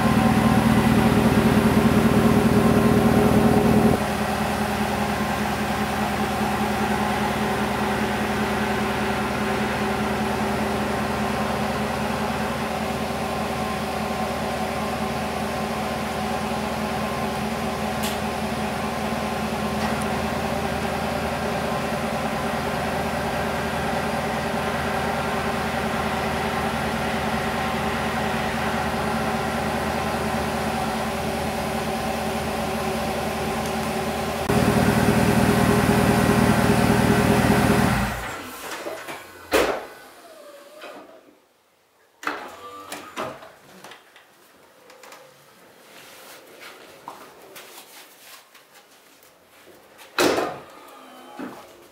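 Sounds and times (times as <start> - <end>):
pickup engine idling: 0.0 - 38.2.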